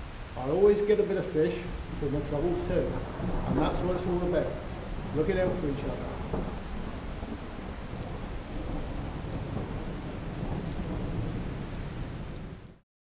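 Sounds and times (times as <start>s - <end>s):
steady rain: 0.0s - 12.8s
wind: 0.0s - 12.8s
deep rumble: 1.7s - 11.2s.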